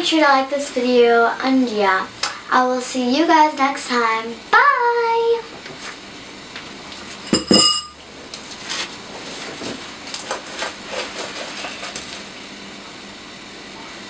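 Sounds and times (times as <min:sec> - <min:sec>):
spoon clinking ceramic bowl: 0:07.3 - 0:08.0.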